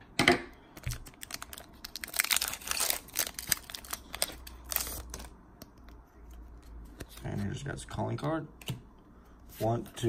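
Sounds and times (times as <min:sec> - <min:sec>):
foil wrapper crinkling and tearing: 0:00.8 - 0:05.3.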